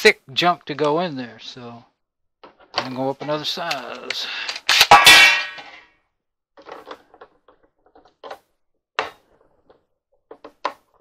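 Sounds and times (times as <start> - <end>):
loud metallic clang: 4.7 - 5.8.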